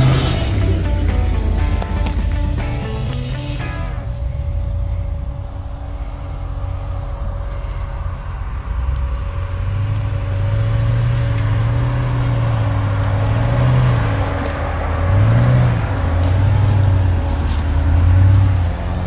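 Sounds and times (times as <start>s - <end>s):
car engine revving under load: 0.0s - 19.0s.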